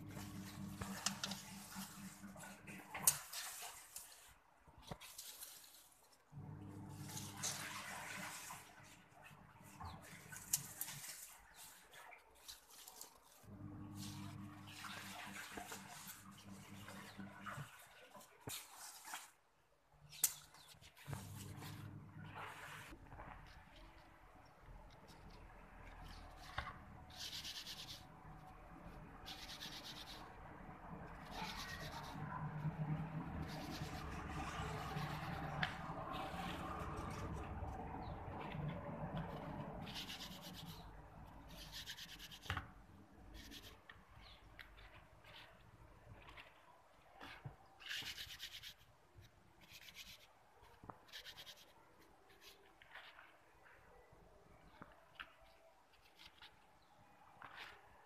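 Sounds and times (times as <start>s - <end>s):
leaves rubbed between palms: 0.0s - 9.1s, 9.7s - 19.4s, 20.1s - 42.5s.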